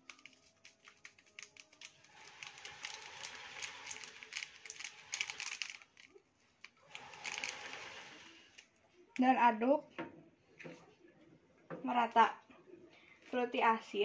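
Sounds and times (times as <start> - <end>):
plastic sachet crinkling: 0.0 - 8.7.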